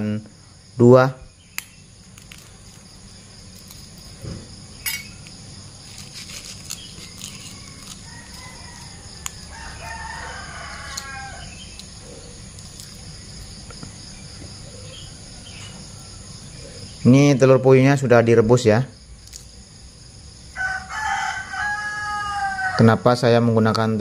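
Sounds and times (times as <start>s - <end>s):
crickets chirring: 0.0s - 24.0s
rooster crowing: 7.0s - 12.4s, 14.6s - 16.8s, 20.5s - 23.0s.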